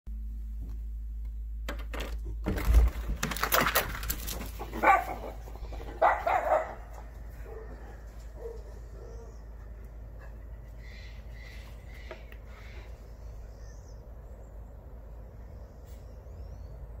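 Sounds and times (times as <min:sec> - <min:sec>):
dogs barking: 0:04.5 - 0:10.4.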